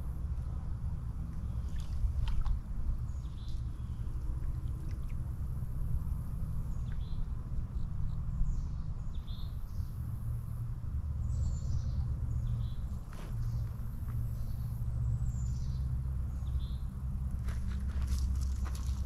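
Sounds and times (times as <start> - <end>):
birds chirping: 11.2 - 16.9.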